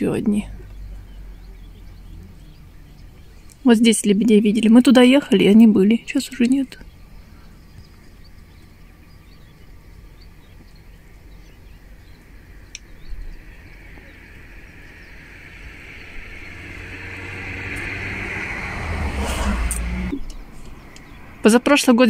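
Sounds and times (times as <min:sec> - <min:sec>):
low engine hum: 0:00.0 - 0:22.0
vehicle passing close by: 0:11.2 - 0:21.5.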